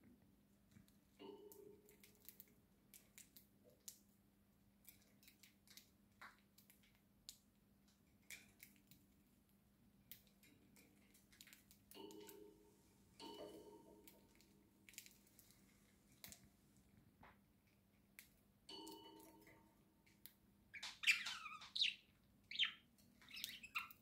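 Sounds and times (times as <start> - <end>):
birds pecking seed clicks: 1.4 - 4.1, 4.8 - 9.1, 13.2 - 15.6.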